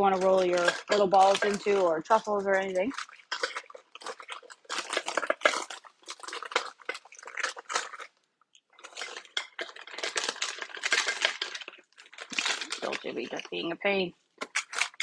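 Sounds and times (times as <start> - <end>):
seasoning jar rattling: 8.8 - 13.7.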